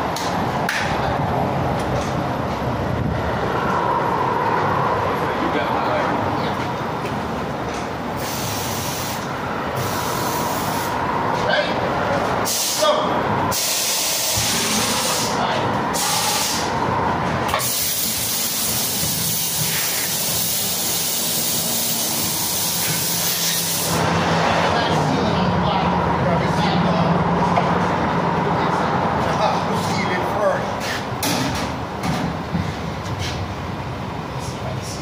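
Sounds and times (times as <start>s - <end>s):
gas spraying hiss: 8.2s - 9.2s, 13.5s - 15.4s, 16.0s - 16.7s, 17.6s - 24.0s.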